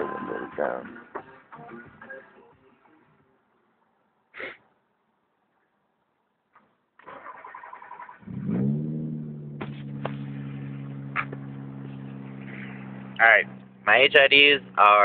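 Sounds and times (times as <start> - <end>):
car engine revving and idling: 7.6 - 15.0.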